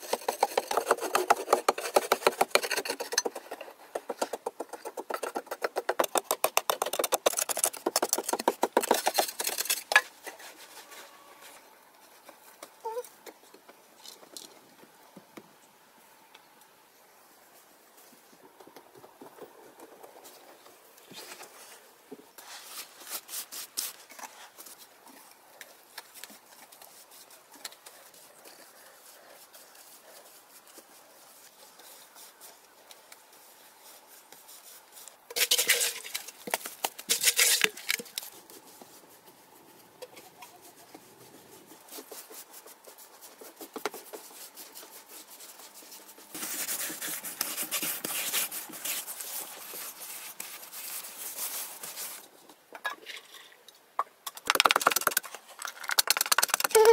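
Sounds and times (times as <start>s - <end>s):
rubbing and scraping: 0.0s - 12.7s, 26.0s - 52.3s
hands patting wet mortar: 54.4s - 56.9s.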